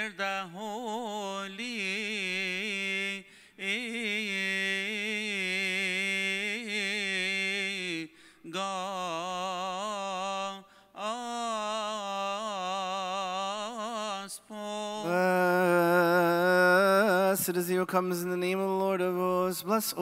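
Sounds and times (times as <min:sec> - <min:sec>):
man chanting: 0:00.0 - 0:20.0
man taking quick breath: 0:03.3 - 0:03.6, 0:08.1 - 0:08.5, 0:10.7 - 0:11.0.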